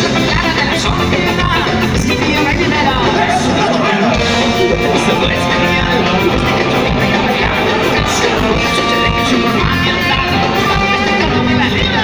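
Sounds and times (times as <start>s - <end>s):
ska-punk band playing: 0.0s - 12.0s
trumpet holding notes: 3.6s - 11.9s.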